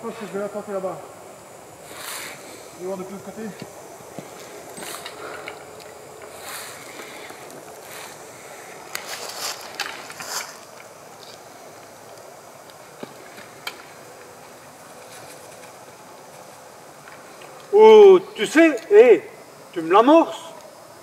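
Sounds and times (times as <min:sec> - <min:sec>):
rustling and scraping in a tree: 0:01.8 - 0:17.7.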